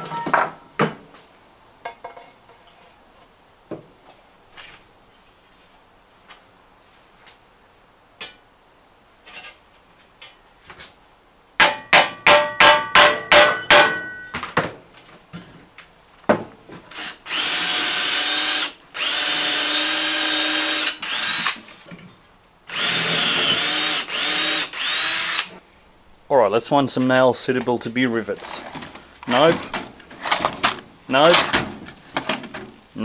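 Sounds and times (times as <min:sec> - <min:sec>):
ringing hammer blows: 0:11.6 - 0:14.4
cordless drill drilling: 0:16.9 - 0:21.6, 0:22.7 - 0:25.6.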